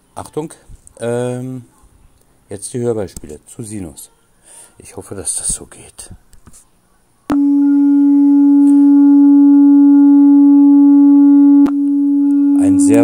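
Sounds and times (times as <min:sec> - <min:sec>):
sine-wave tone: 0:07.3 - 0:13.0.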